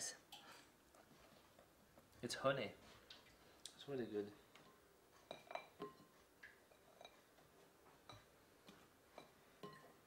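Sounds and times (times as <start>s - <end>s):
pastries clinking in glass bowl: 5.3s - 6.1s.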